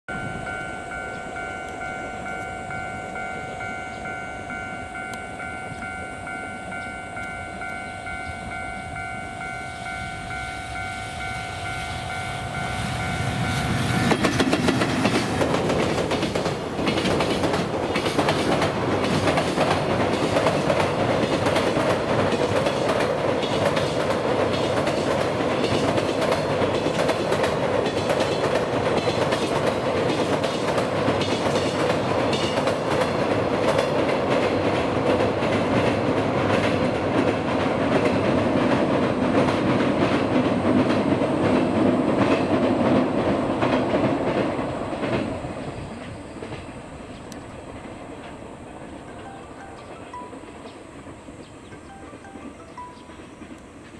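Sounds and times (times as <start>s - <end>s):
freight train wheels clattering: 11.2s - 53.9s.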